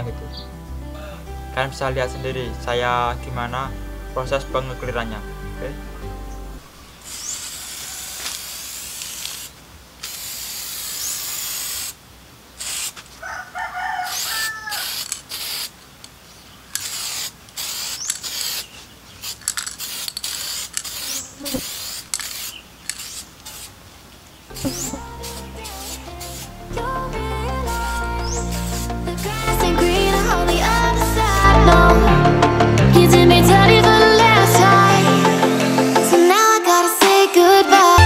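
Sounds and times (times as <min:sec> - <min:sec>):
aerosol spray can hissing: 0:07.0 - 0:12.0, 0:12.6 - 0:13.0, 0:14.1 - 0:15.8, 0:16.8 - 0:23.8, 0:24.5 - 0:32.1.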